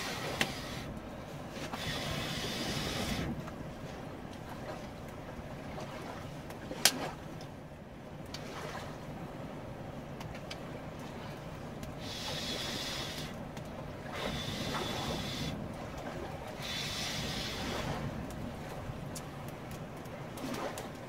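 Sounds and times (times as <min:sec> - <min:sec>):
river water rushing: 0:00.0 - 0:00.8
campfire crackling: 0:00.0 - 0:01.8.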